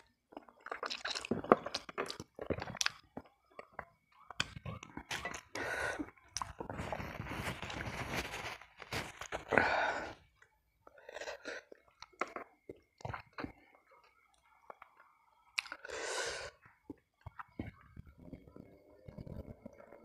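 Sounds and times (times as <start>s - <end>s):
chewing with wet smacks: 0.3s - 5.6s, 11.7s - 15.8s
loud breaths: 9.5s - 10.2s.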